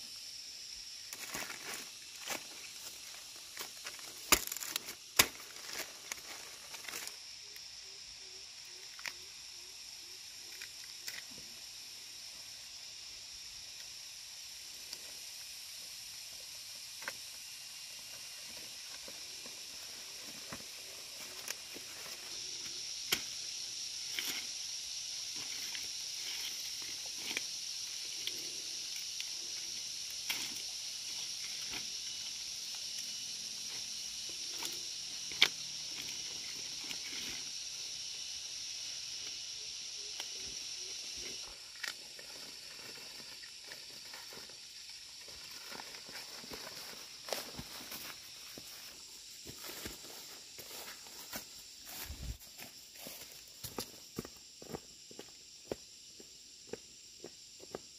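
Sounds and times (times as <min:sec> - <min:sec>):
high insect drone: 0:00.0 - 0:57.9
footsteps and rustling leaves: 0:01.0 - 0:07.3, 0:17.0 - 0:28.6, 0:40.6 - 0:57.9.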